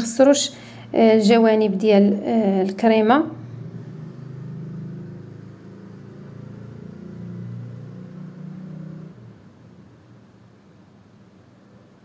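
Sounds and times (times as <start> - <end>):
low motor hum: 2.9 - 9.9.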